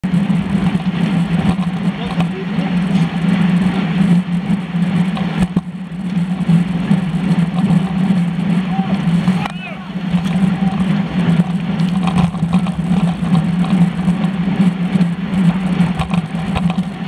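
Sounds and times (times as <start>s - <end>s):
wind and road noise: 0.0s - 17.0s
riders' voices: 1.8s - 4.2s, 8.4s - 11.5s.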